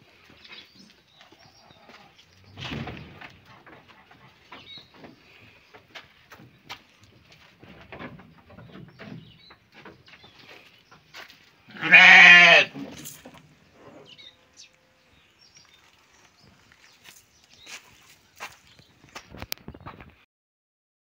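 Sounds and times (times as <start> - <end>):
faint knocks and rustles: 2.2 - 11.6
goat bleating: 11.7 - 12.8.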